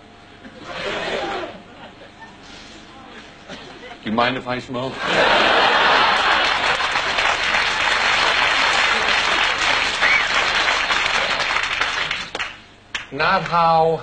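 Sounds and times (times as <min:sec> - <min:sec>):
audience applauding: 0:05.5 - 0:13.1.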